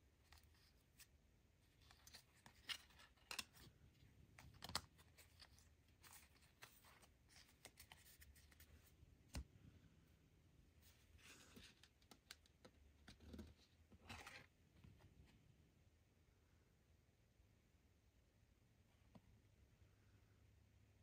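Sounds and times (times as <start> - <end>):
trading cards rustling: 0.2 - 9.4.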